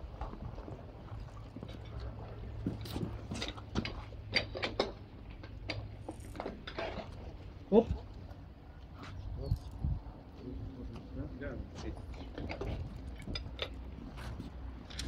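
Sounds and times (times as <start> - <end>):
low steady hum: 0.0 - 15.0
metal hose couplings clicking: 3.3 - 7.2, 12.0 - 15.0.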